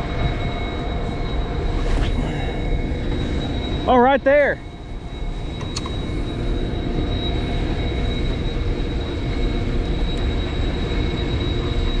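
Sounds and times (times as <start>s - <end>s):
high-pitched whine: 0.0s - 12.0s
mechanical drone with low rumble: 0.0s - 12.0s.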